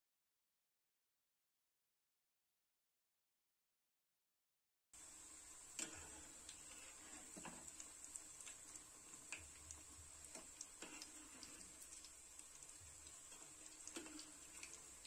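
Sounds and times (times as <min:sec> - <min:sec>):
food deep-frying in oil: 0:05.0 - 0:15.0.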